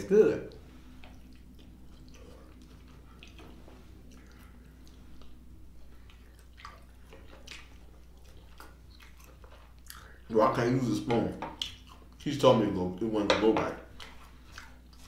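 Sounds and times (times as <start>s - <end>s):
man chewing food: 0.4s - 10.3s, 11.0s - 12.3s, 13.8s - 15.0s.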